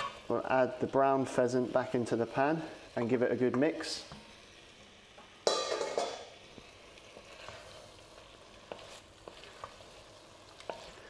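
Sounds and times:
meat sizzling in a pot: 0.0s - 11.0s
wooden spoon stirring: 7.0s - 11.0s.

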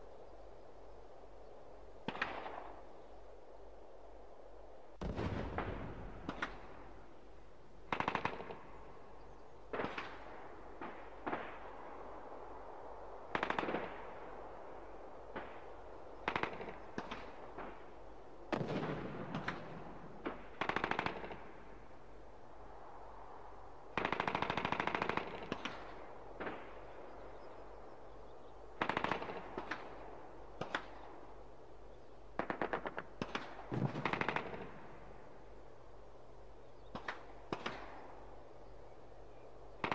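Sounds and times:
rifle shots: 5.0s - 7.2s, 7.9s - 8.9s, 18.5s - 21.6s, 28.8s - 31.0s, 32.4s - 35.0s.

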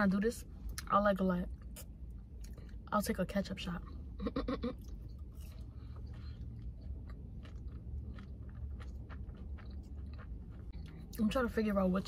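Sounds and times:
steady low hum: 0.0s - 12.0s
person chewing food: 4.7s - 11.2s.

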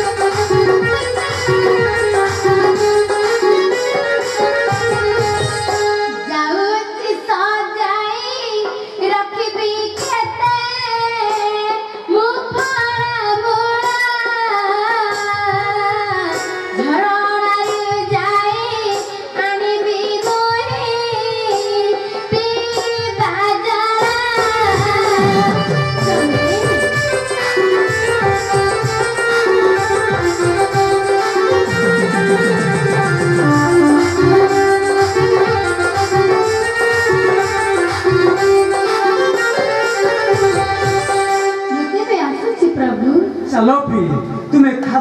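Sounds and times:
instrumental accompaniment: 0.0s - 45.0s
girl singing: 6.1s - 26.8s.

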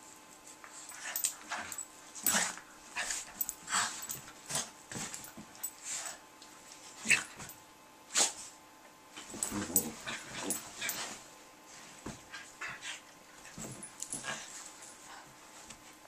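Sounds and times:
dogs breathy play noises: 0.6s - 6.3s, 9.2s - 15.9s
dogs play vocalisations: 9.4s - 11.1s.

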